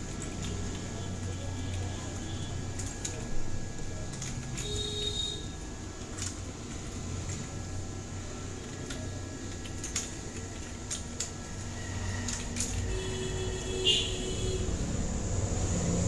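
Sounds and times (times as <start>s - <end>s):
keyboard keys clicking: 8.6s - 11.4s.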